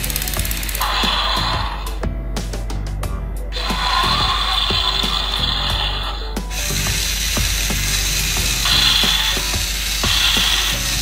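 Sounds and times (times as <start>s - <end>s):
motor whir: 0.0s - 2.0s, 3.6s - 11.0s
toy gearbox ratcheting clicks: 0.0s - 2.0s, 6.6s - 11.0s.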